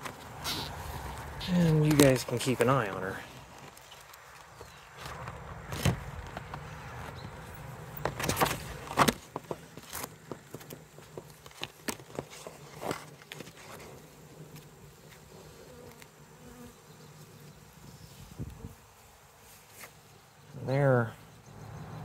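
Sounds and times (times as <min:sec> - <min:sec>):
bees buzzing: 0:14.0 - 0:20.5.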